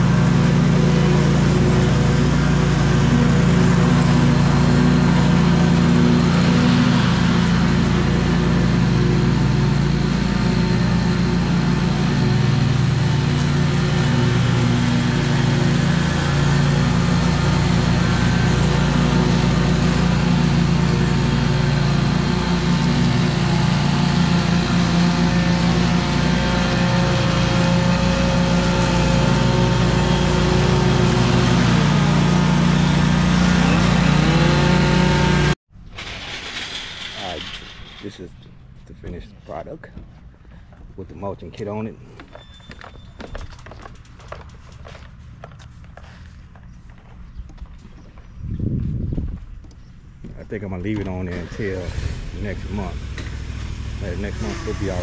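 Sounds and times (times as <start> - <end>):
lawn mower running: 0.0 - 36.4, 50.7 - 55.0.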